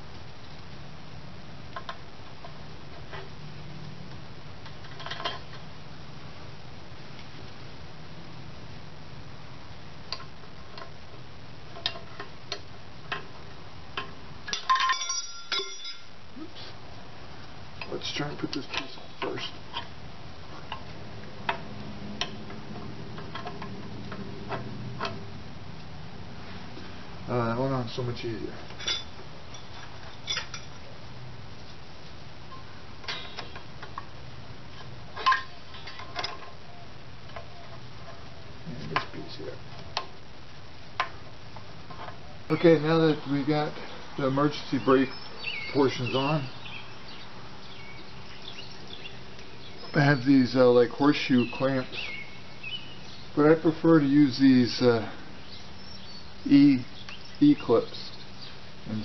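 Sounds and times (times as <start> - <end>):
faint low hum: 0.0 - 59.0
metal parts clicking and clinking: 4.8 - 5.6, 14.0 - 16.1, 28.7 - 30.8, 35.2 - 36.6
metal clattering and ringing: 14.5 - 16.1, 28.8 - 30.8.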